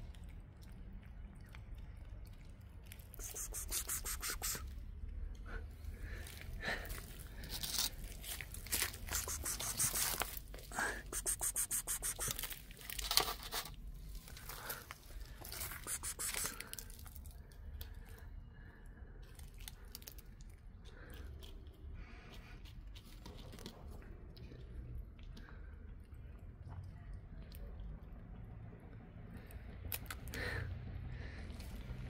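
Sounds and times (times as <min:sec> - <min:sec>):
crinkling and tearing: 0:06.8 - 0:11.2.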